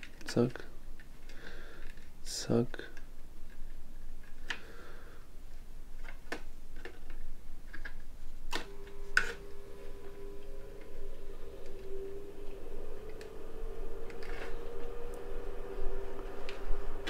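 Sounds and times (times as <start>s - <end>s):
faint steady tone: 8.5s - 17.0s.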